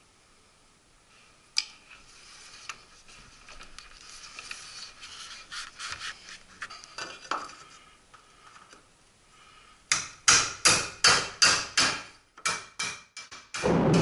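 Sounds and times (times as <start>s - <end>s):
pipe rustling and clicks: 1.6s - 8.8s.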